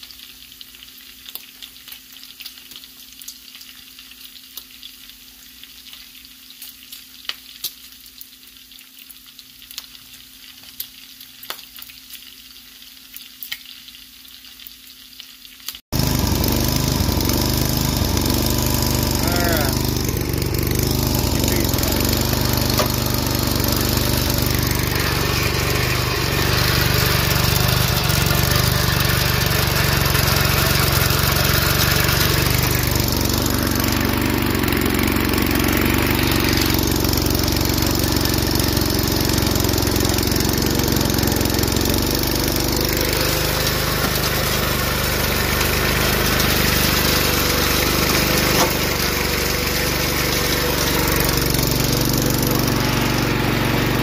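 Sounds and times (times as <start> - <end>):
lawn tractor engine running: 15.9 - 54.0.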